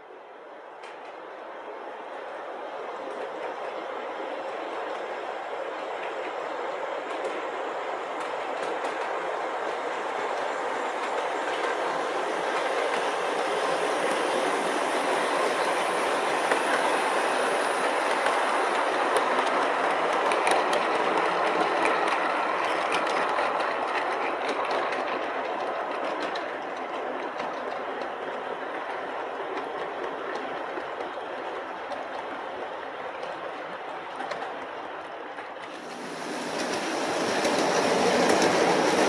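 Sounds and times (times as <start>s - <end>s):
metal wheels rumbling on rail: 35.8s - 39.0s.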